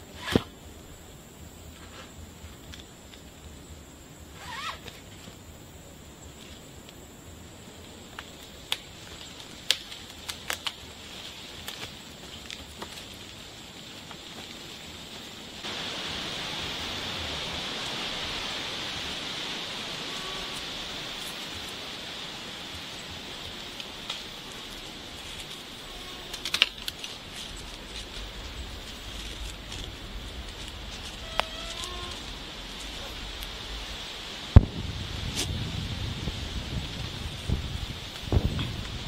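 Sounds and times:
heavy rain hiss: 0:00.0 - 0:39.0
high-pitched whine: 0:24.5 - 0:34.9.

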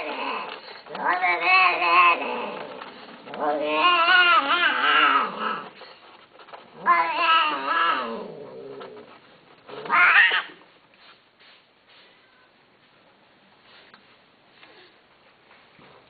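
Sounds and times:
cat yowling: 0:09.8 - 0:10.6.

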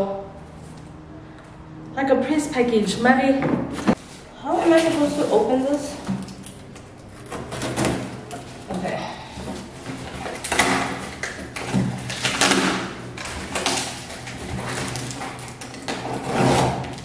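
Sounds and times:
packing tape ripping off cardboard: 0:09.6 - 0:17.0.

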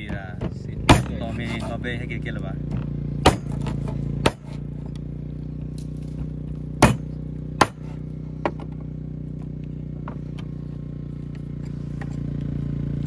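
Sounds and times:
sharp knocks: 0:00.0 - 0:01.7, 0:02.7 - 0:04.6, 0:06.8 - 0:08.8
vehicle engine idling: 0:00.0 - 0:13.0.

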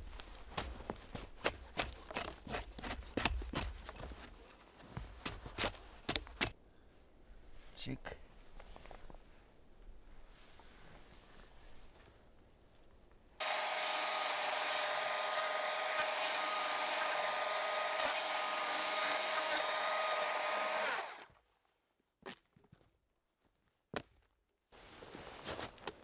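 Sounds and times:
power tool motor whining: 0:13.4 - 0:21.3.

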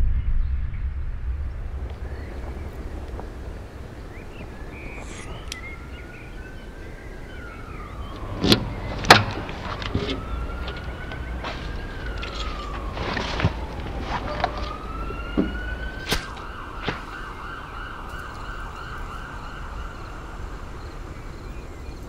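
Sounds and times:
steady low rumble: 0:00.0 - 0:16.7
siren wailing: 0:01.7 - 0:22.0.

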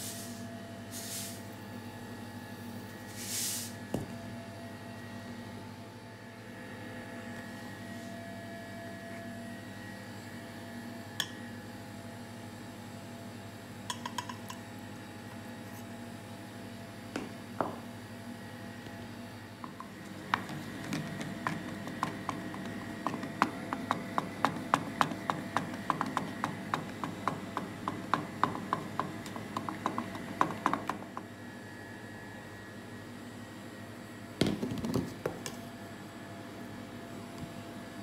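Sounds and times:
spatula clacking against bowl: 0:20.3 - 0:31.2.

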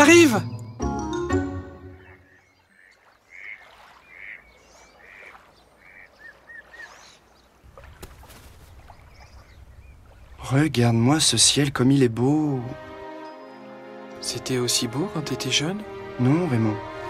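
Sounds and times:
duck quacking: 0:02.8 - 0:06.1.

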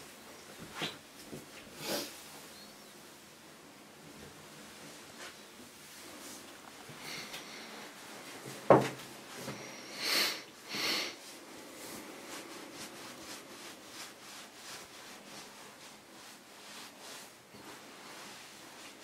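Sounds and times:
towel rustling: 0:11.2 - 0:19.0.

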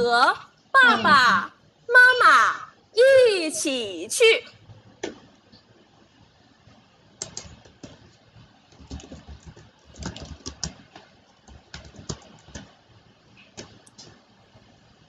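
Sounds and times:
computer keyboard typing: 0:07.2 - 0:12.8, 0:13.4 - 0:14.2.

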